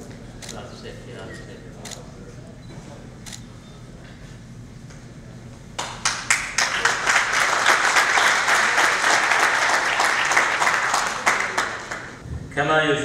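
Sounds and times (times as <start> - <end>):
audience clapping: 5.8 - 12.2.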